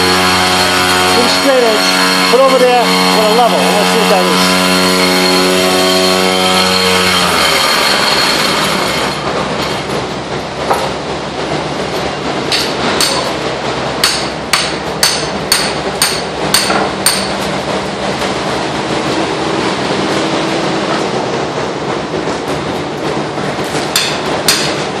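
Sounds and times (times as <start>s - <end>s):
machinery noise: 0.0s - 25.0s
hammer strikes ringing: 12.5s - 13.3s, 14.0s - 17.5s, 23.9s - 24.9s.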